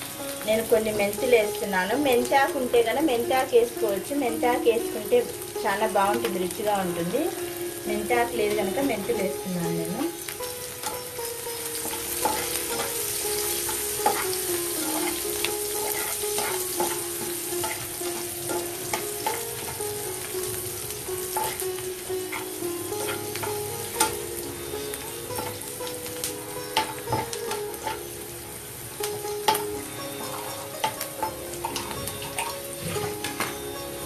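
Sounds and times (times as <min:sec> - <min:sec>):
onions sizzling in hot oil: 0:00.0 - 0:34.0
spatula scraping and tapping pan: 0:10.4 - 0:20.6, 0:21.2 - 0:28.2, 0:29.0 - 0:33.7.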